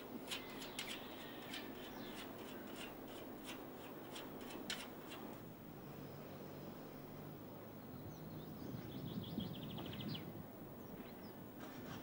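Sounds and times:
small birds chirping: 0.0 - 2.9
faint outdoor background: 0.0 - 12.0.

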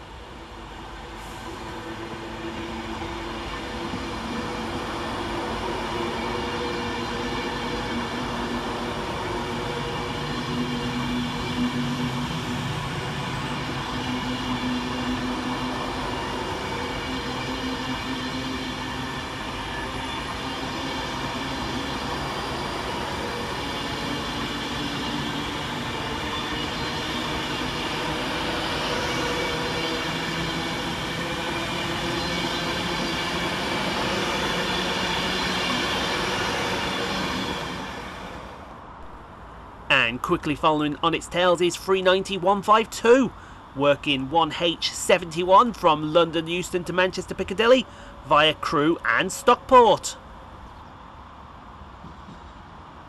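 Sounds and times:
electric train hum: 0.0 - 53.0
rising whine: 0.4 - 39.3.

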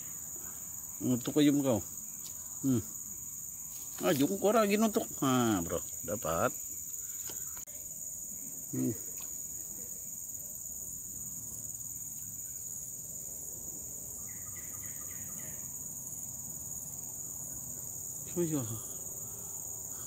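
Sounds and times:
insect continuous whine: 0.0 - 20.0
insect pulsing buzz: 0.0 - 20.0
faint chirps: 5.5 - 10.2.

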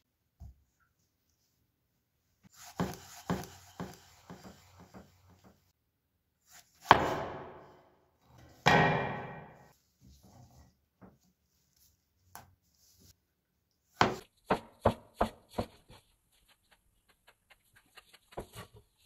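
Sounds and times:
loud knife chop: 6.8 - 7.7, 8.7 - 9.7, 14.0 - 15.7.

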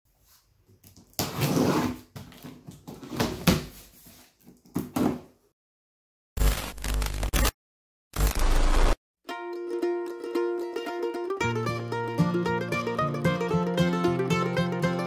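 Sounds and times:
music: 9.2 - 15.0.

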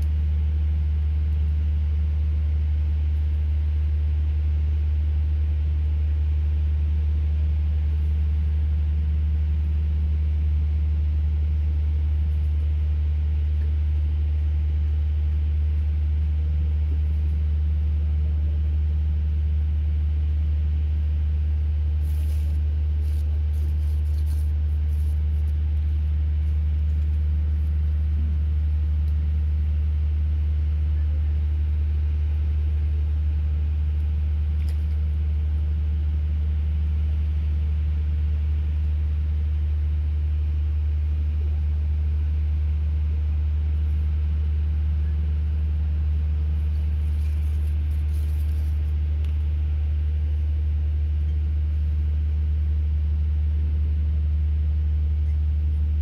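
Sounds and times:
low mechanical drone: 0.0 - 56.0.

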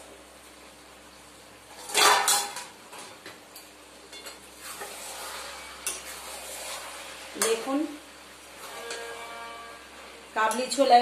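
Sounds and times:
metal spoon scraping a pan: 4.1 - 7.8, 8.5 - 11.0.

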